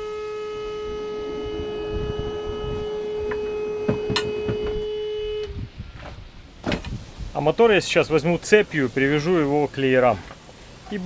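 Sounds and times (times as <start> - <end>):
steady hum with overtones: 0.0 - 6.6.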